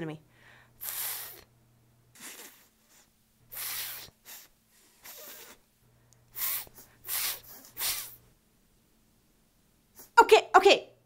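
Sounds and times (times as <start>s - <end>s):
woman blowing breathy puffs: 0.4s - 1.5s, 2.2s - 5.7s, 6.3s - 8.2s.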